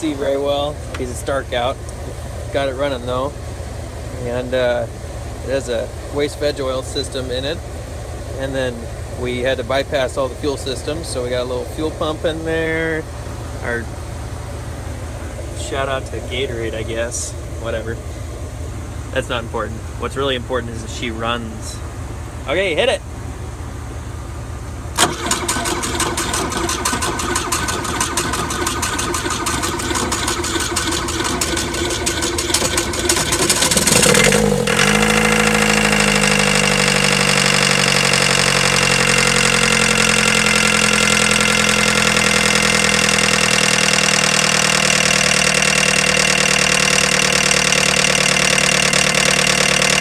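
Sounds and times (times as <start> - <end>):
diesel engine idling: 0.0 - 50.0
diesel engine cranking on starter: 24.9 - 50.0.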